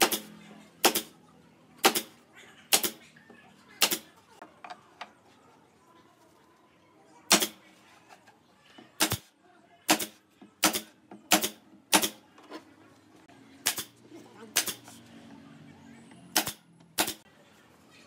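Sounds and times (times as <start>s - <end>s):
nail gun firing: 0.0s - 1.1s, 1.8s - 2.1s, 2.7s - 3.0s, 3.8s - 4.0s, 7.3s - 7.6s, 9.0s - 9.3s, 9.9s - 12.2s, 13.6s - 13.9s, 14.6s - 14.8s, 16.3s - 17.2s.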